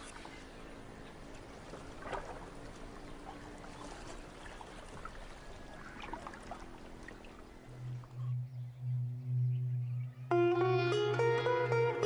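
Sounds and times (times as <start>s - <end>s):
low steady hum: 0.0s - 12.0s
water trickling: 1.3s - 8.2s.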